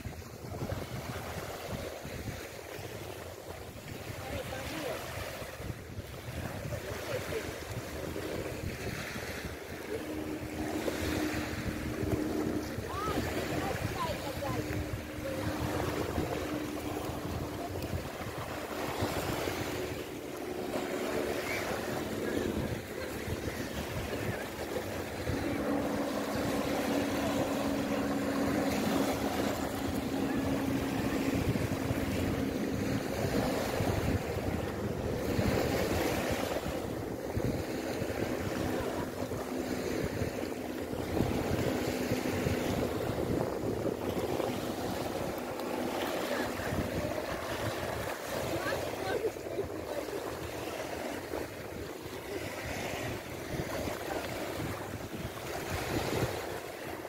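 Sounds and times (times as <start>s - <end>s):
small waves lapping on shore: 0.0s - 57.0s
wind buffeting microphone: 0.0s - 57.0s
steady low hum: 7.9s - 49.0s.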